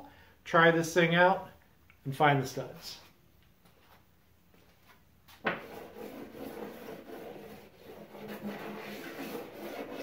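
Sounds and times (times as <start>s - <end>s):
stud finder scraping on drywall: 5.4s - 10.0s.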